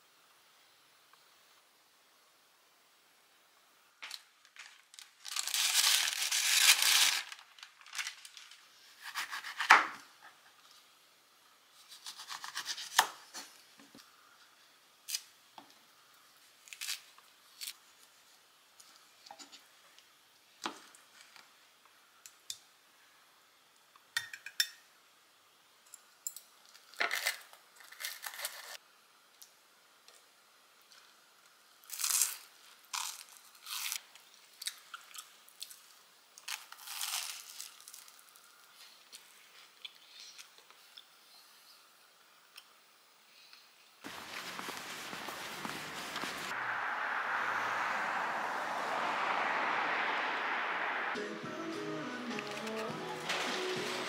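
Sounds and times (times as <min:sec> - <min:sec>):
citrus peel tearing and rustling: 0:11.9 - 0:13.2, 0:16.6 - 0:17.8, 0:31.9 - 0:35.8, 0:36.4 - 0:38.4
toast crunching: 0:31.9 - 0:38.4.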